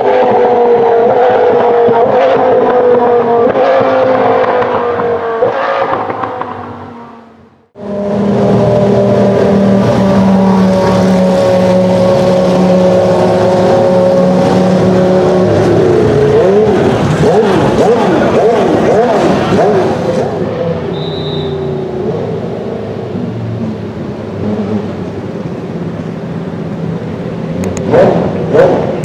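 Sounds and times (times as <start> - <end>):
racing car engine: 0.0 - 29.0.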